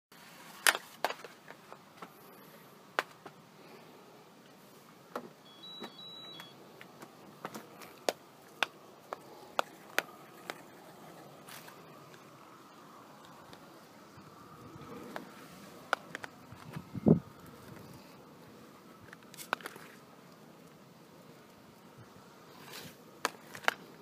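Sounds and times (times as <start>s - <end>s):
faint steady noise: 0.1s - 24.0s
short high beep: 5.4s - 6.6s.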